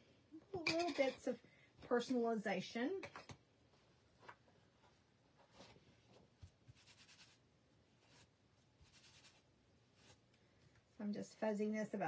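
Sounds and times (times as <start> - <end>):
rubbing on a towel: 6.7 - 7.4, 8.0 - 9.4.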